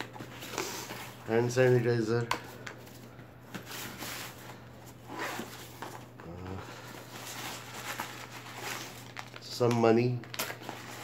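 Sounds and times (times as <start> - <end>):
rummaging in leather bag: 3.6 - 9.3.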